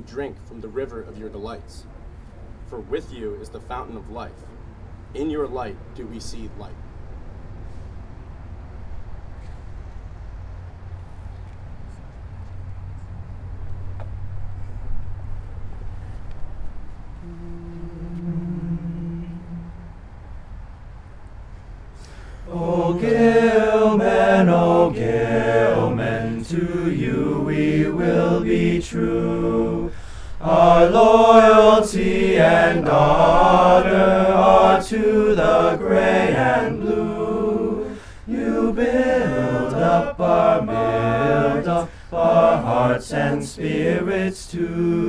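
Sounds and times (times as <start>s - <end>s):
boys singing a cappella: 22.5s - 45.0s.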